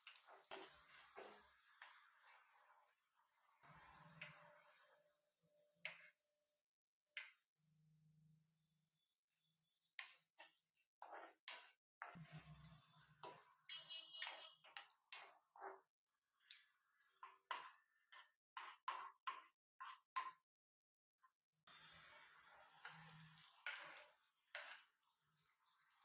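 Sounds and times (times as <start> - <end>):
spoon scraping a frying pan: 0.0 - 2.6, 5.6 - 6.2, 9.4 - 15.9, 16.5 - 20.4, 22.5 - 25.1.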